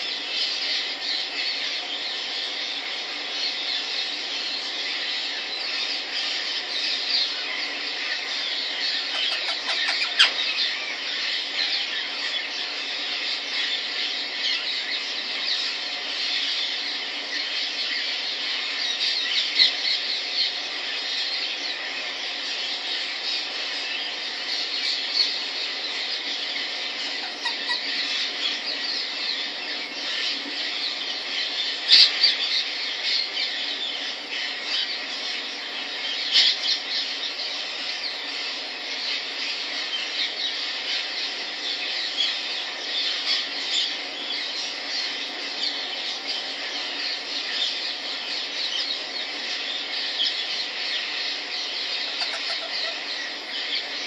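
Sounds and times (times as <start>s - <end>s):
parrot squeaky chatter: 9.1s - 10.8s, 52.1s - 53.0s
parrot squealing: 9.1s - 10.9s, 52.1s - 53.0s.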